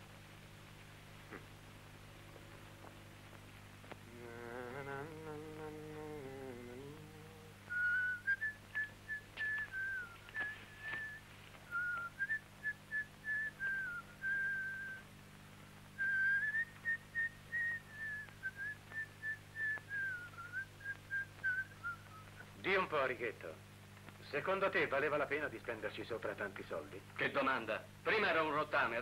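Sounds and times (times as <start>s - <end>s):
man whistling a tune: 7.7s - 15.0s, 16.0s - 22.4s.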